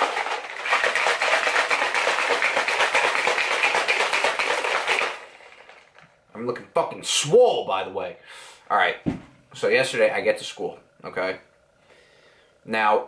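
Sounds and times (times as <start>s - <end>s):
shaker cup rattling and sloshing: 0.0s - 6.0s.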